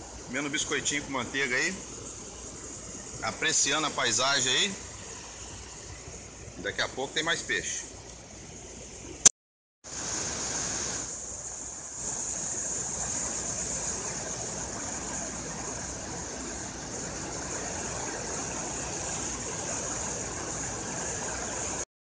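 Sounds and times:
water rushing down rock: 9.9s - 21.8s.

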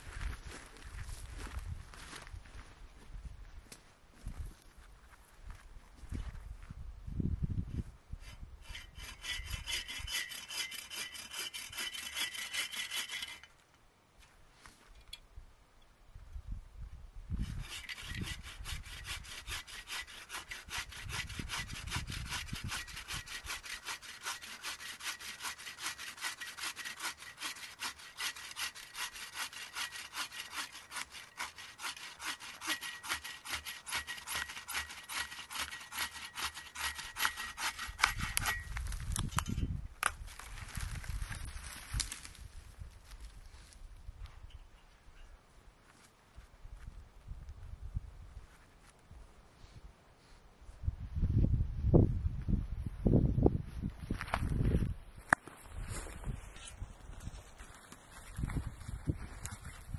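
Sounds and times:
hand saw cutting wood: 8.2s - 13.5s, 17.4s - 39.5s.

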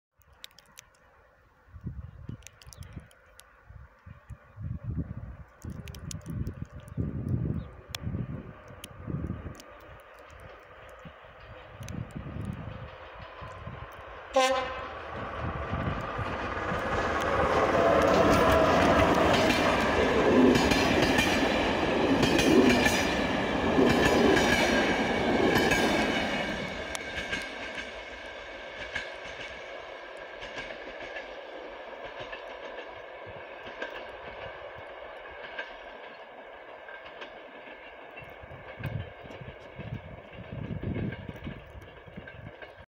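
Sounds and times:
faint clicks: 0.2s - 1.1s, 1.7s - 4.4s, 5.4s - 14.1s
train passing at speed: 4.6s - 42.9s.

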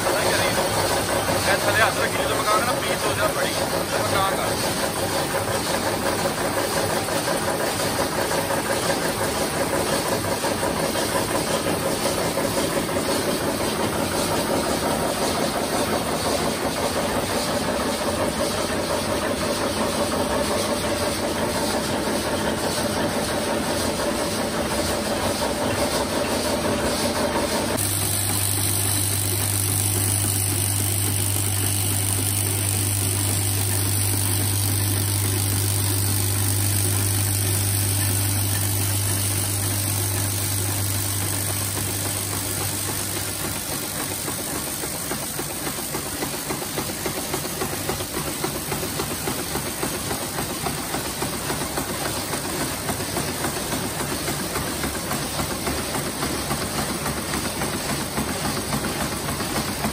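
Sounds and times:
machine clattering: 0.0s - 59.9s
bowl feeder humming: 27.8s - 42.6s.

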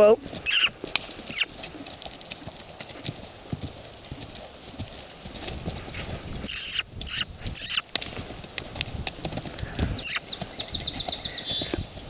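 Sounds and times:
horse hoofbeats on dirt: 0.0s - 12.0s
horse breathing burst: 9.3s - 10.4s.

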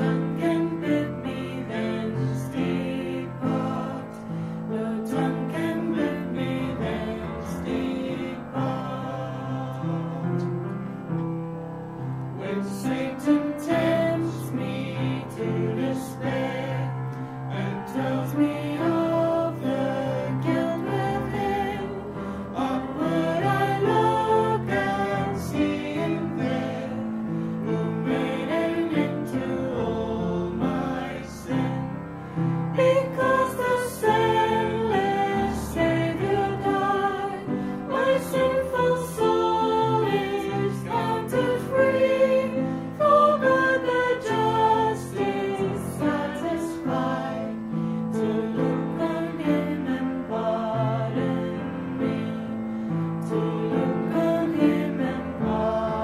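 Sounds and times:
group singing a hymn: 0.0s - 56.0s.

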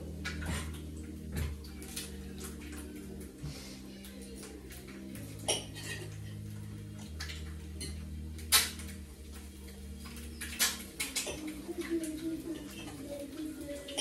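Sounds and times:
steady low hum: 0.0s - 14.0s
metal pans clinking and clattering: 4.9s - 9.0s.

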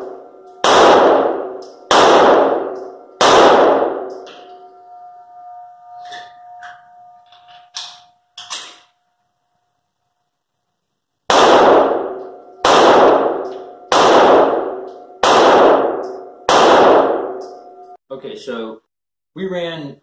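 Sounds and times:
pistol shots echoing indoors: 0.0s - 5.0s, 11.2s - 17.9s.

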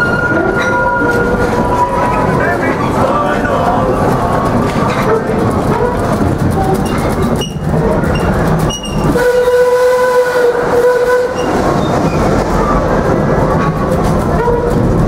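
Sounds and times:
steam locomotive whistle: 0.0s - 2.1s, 9.0s - 11.6s
train clickety-clack: 0.0s - 15.0s.

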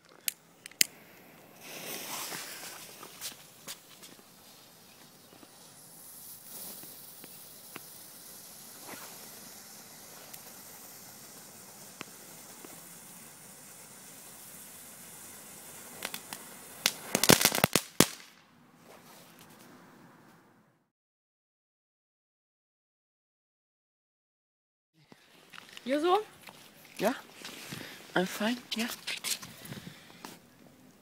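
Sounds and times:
firework fountain hissing: 0.0s - 18.4s, 25.0s - 31.0s
faint crackles: 0.0s - 19.9s, 25.0s - 31.0s
loud sharp firework cracks: 0.3s - 18.5s.

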